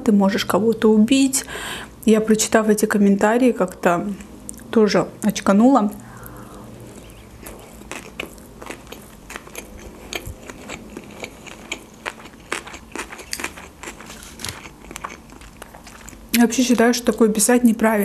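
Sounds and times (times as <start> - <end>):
close chewing: 6.2 - 16.3.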